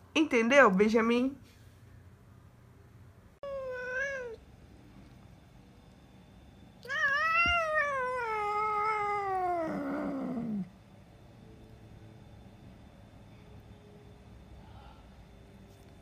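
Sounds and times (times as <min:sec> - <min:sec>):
cat meowing: 0:03.4 - 0:04.4, 0:06.8 - 0:10.7
cat yowling: 0:03.4 - 0:04.4, 0:06.8 - 0:10.7.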